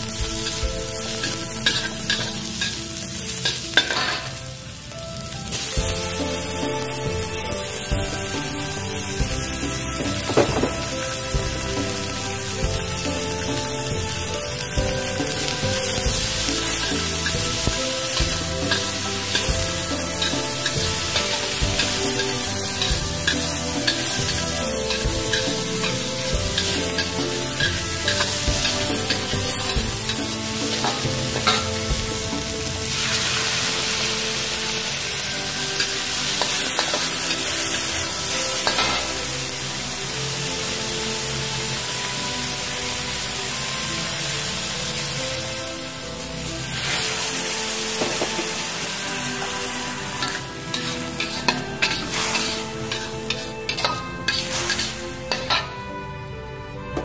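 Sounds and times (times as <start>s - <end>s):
food sizzling in hot oil: 0.0s - 55.7s
metal spatula scraping and tapping wok: 0.2s - 4.4s, 13.0s - 33.2s, 35.3s - 39.3s, 48.0s - 55.8s.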